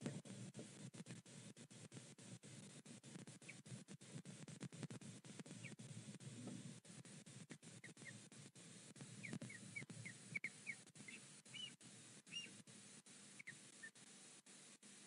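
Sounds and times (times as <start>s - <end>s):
osprey whistled chirps: 9.5s - 12.5s.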